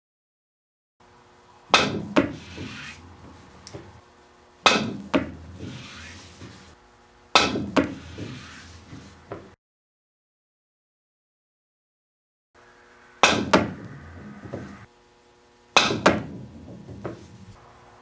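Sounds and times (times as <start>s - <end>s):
pool balls clicking: 1.6s - 4.0s, 4.6s - 6.8s, 15.8s - 17.6s
cue striking pool ball: 1.7s - 4.0s, 13.2s - 14.8s.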